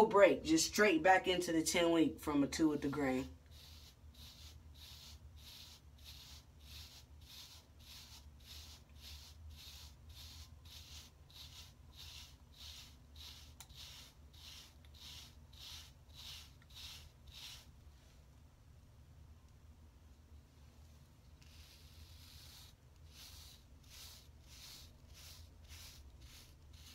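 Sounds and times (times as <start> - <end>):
brush swishing through hair: 3.5 - 17.8, 21.4 - 26.9.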